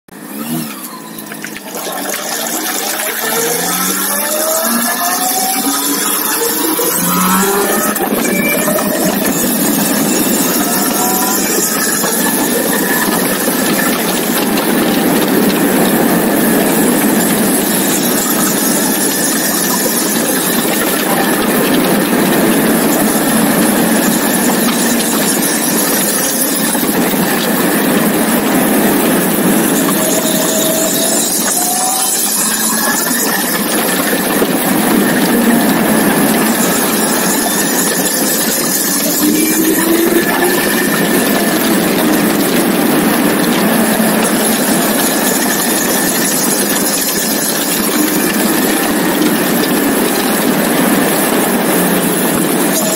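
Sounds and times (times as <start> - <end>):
motorcycle engine: 0.1 - 52.9.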